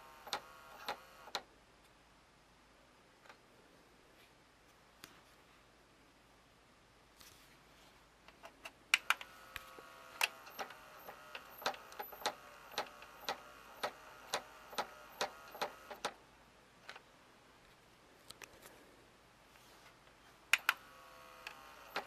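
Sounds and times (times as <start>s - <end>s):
faint motor whine: 0.0s - 1.4s, 8.9s - 16.2s, 19.6s - 22.0s
sharp mechanism clicks: 9.0s - 16.2s.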